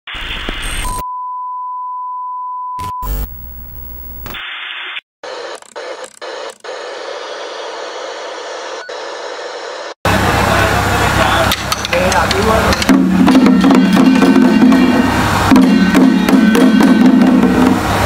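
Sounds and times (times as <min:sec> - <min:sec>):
television static: 0:00.1 - 0:00.8, 0:02.8 - 0:12.9
glitchy distortion: 0:00.1 - 0:01.0, 0:02.8 - 0:09.9.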